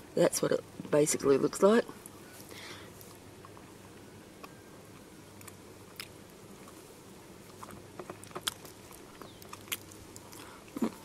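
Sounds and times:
chewing candy: 0:07.4 - 0:11.0.

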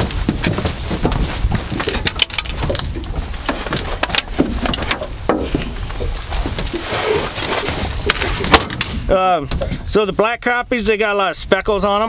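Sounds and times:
steady low rumble: 0:00.0 - 0:10.9
gear clicking and knocking: 0:00.4 - 0:05.7.

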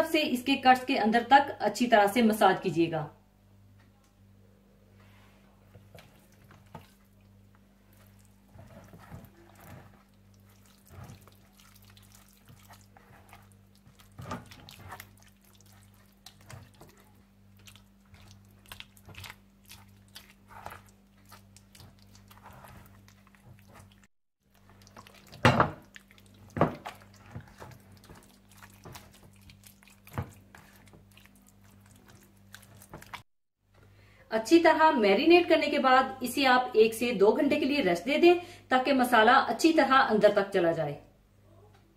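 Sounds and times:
hands squishing wet marinade: 0:05.7 - 0:33.3.

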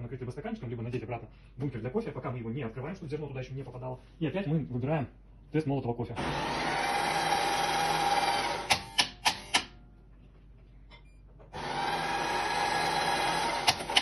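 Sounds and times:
coffee grinder whirring: 0:06.2 - 0:09.0, 0:11.6 - 0:14.0
sharp clicks: 0:08.7 - 0:09.7.

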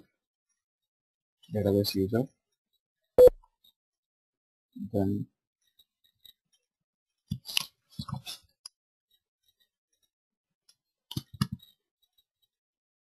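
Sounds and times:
keyboard and mouse clicks: 0:11.1 - 0:11.8.

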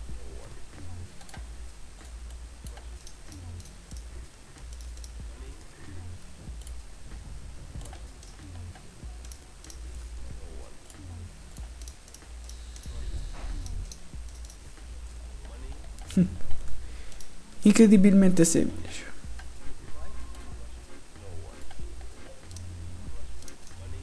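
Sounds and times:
low steady hum: 0:00.0 - 0:24.0
computer mouse and keyboard clicks: 0:07.8 - 0:09.9, 0:11.6 - 0:14.7, 0:23.4 - 0:23.9.

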